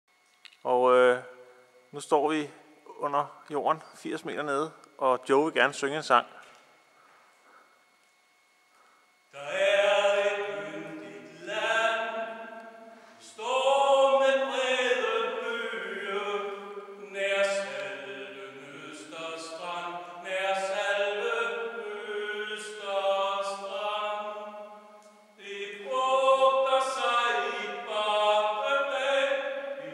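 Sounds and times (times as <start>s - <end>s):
man singing unaccompanied: 9.3s - 29.9s.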